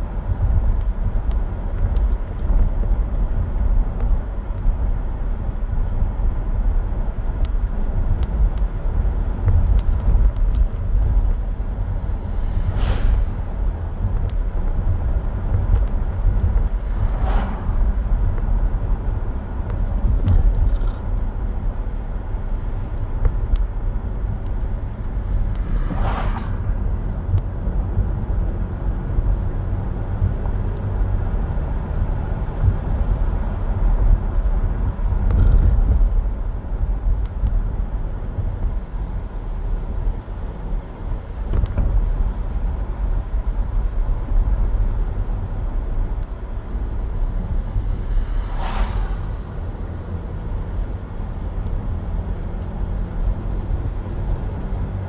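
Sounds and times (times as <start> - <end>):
tyres and engine rumble: 0.0 - 55.0
brief swish: 12.5 - 13.5, 25.7 - 26.7, 48.2 - 49.7.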